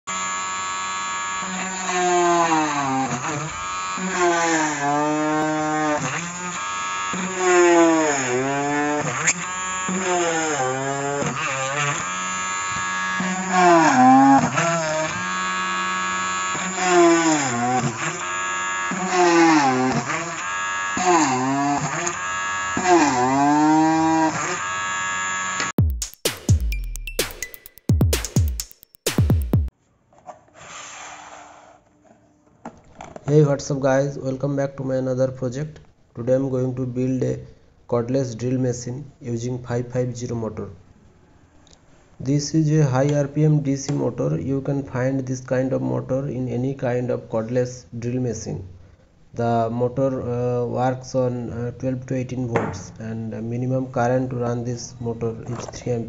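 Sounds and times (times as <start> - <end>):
drill motor whining: 0.1 - 25.8.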